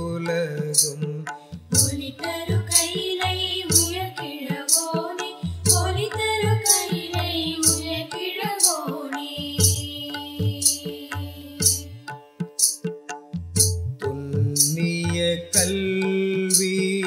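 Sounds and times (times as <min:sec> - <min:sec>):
deep drum beat: 0:00.0 - 0:04.2, 0:05.5 - 0:08.8, 0:09.4 - 0:16.0.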